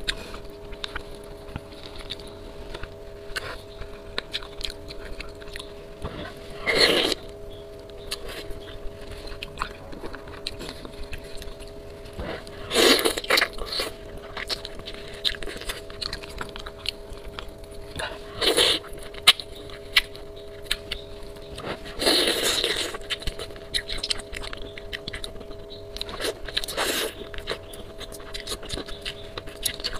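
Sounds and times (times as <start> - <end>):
wet chewing and biting: 0.0 - 7.4, 8.0 - 29.9.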